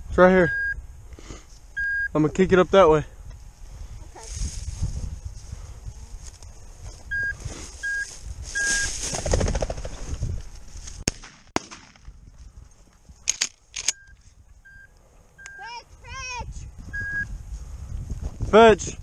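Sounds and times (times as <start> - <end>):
short electronic beeps: 0.4 - 0.8, 1.8 - 2.2, 7.1 - 8.9, 13.9 - 15.7, 16.9 - 17.3
footsteps through dry grass: 3.4 - 11.1
shotgun firing: 11.1 - 12.1.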